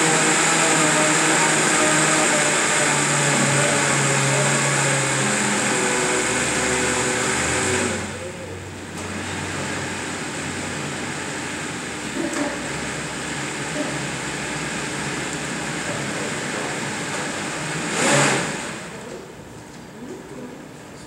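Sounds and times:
blender motor whirring: 0.0s - 8.4s, 13.5s - 19.0s.

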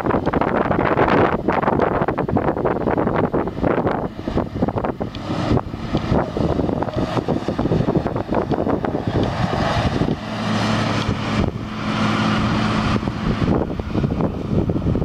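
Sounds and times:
excavator diesel engine rumbling: 0.0s - 15.0s
low engine hum: 0.0s - 15.0s.

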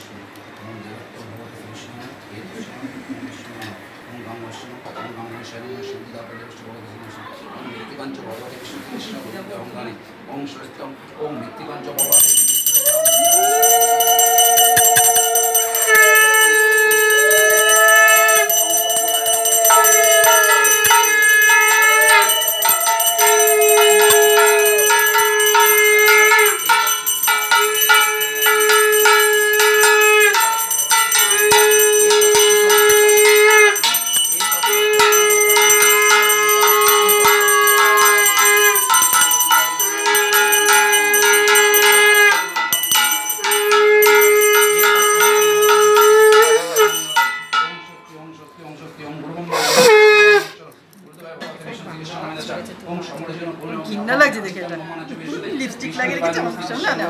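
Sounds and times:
conch shell blasts: 12.0s - 48.4s
hand bell ringing: 12.0s - 48.8s.

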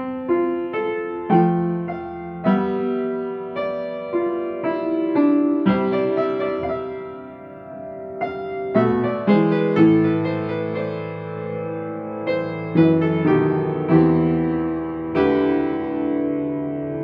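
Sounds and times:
slow piano melody: 0.0s - 17.0s.

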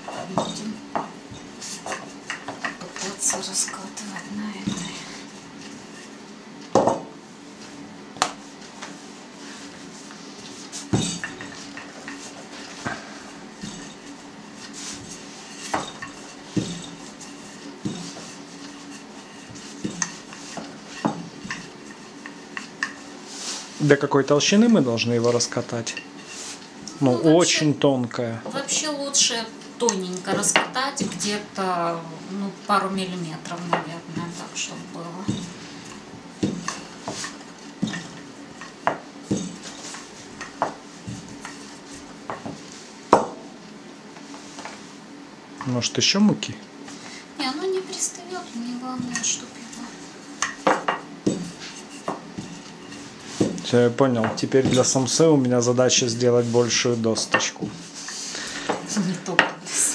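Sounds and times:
rolling pin rolling dough: 0.0s - 27.6s, 28.4s - 45.0s, 45.6s - 59.9s
rolling pin knocking on board: 36.4s - 38.2s, 50.4s - 52.6s.

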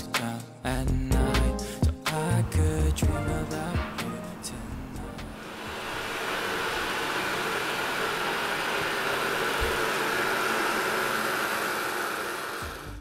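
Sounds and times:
robot vacuum suction hiss: 5.4s - 13.0s.

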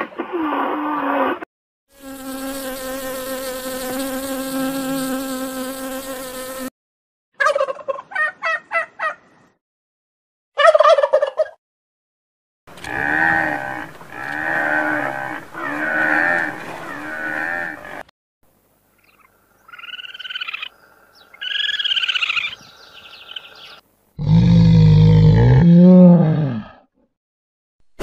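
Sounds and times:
bear loud deep call: 12.8s - 18.0s, 24.2s - 26.8s
drawn-out animal calls: 12.8s - 18.0s.

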